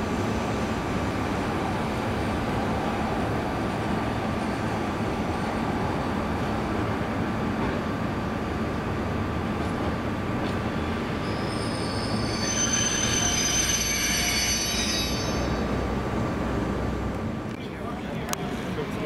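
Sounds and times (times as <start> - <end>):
train rolling rumble: 0.0 - 19.0
train wheels squealing: 10.8 - 15.7.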